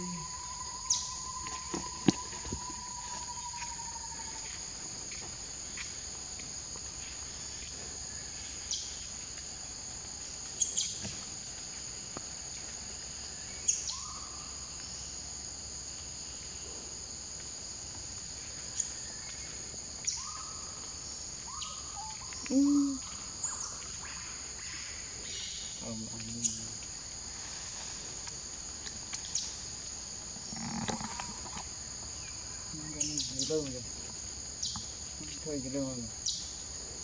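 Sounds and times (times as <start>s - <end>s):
insects droning: 0.0s - 37.0s.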